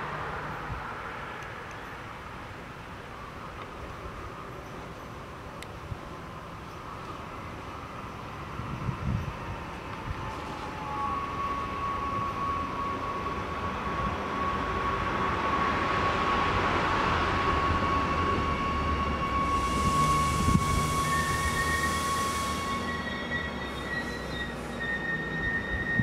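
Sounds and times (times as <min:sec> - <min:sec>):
electric train rumble: 0:00.0 - 0:26.0
high-pitched whine: 0:08.5 - 0:26.0
hiss: 0:19.3 - 0:26.0.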